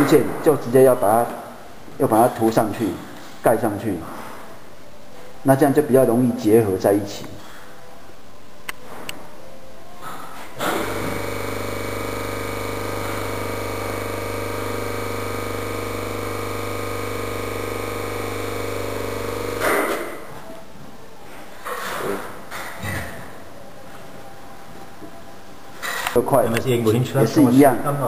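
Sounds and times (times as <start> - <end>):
steady machine hum: 10.6 - 20.4.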